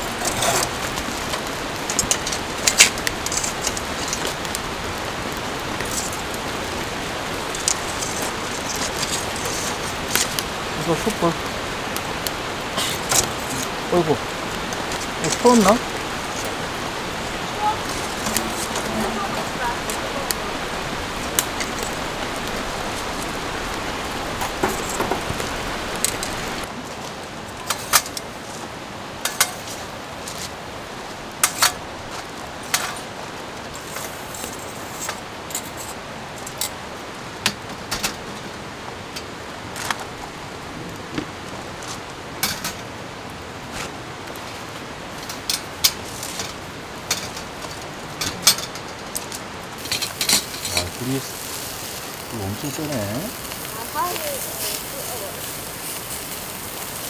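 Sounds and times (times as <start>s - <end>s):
rain hissing: 0.0s - 57.0s
wood fire flaring: 0.0s - 57.0s
tongs clinking on charcoal: 17.9s - 19.2s, 49.8s - 57.0s.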